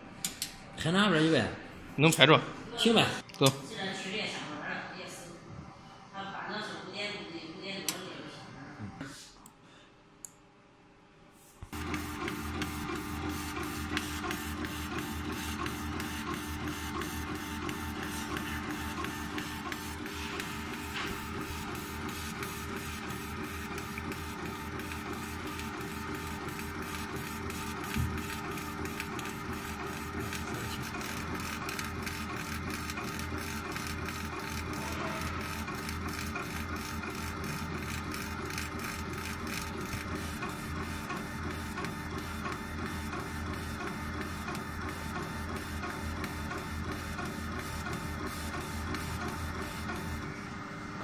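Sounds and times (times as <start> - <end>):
laser engraver head whirring: 11.6 - 50.3.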